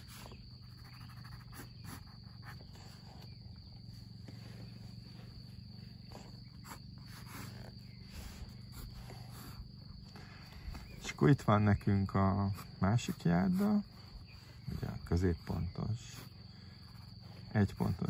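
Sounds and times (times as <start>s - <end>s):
pencil scratching on paper: 0.0s - 3.4s, 6.0s - 11.0s, 12.2s - 18.0s.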